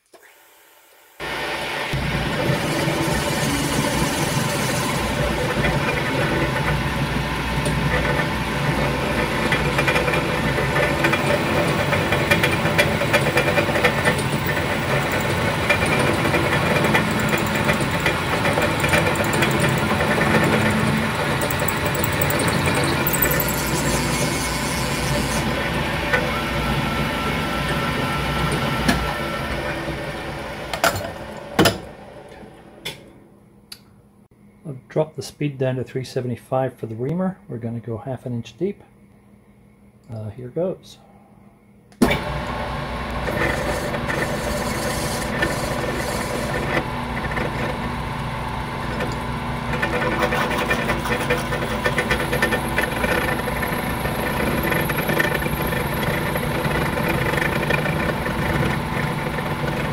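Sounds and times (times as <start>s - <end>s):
machine hum: 1.1s - 59.9s
machine winding down: 1.2s - 30.7s, 42.0s - 59.9s
drill cutting into steel: 2.2s - 6.5s, 9.6s - 25.6s, 43.2s - 47.4s.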